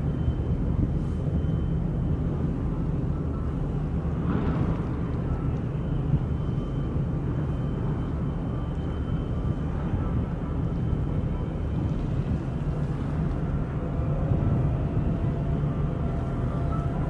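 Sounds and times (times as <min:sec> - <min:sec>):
ship engine low rumble: 0:00.0 - 0:17.0.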